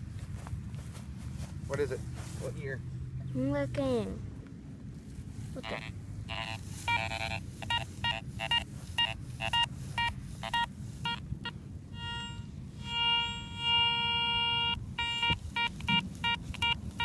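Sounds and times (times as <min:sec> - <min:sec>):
metal detector beeps: 0:05.6 - 0:17.0.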